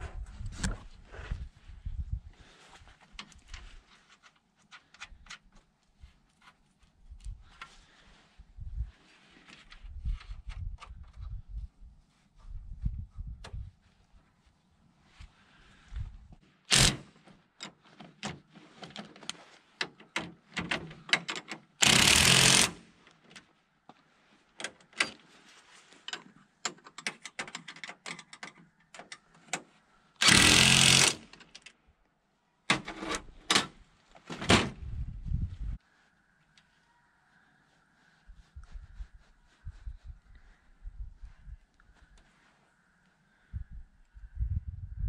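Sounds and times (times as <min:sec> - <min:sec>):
impact tool hammering bolts: 0:16.7 - 0:17.0, 0:21.2 - 0:22.9, 0:30.2 - 0:31.4.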